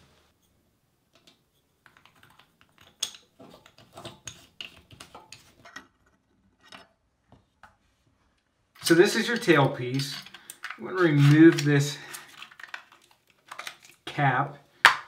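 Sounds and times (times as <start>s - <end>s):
faucet fittings clicking and tapping: 1.1s - 5.3s.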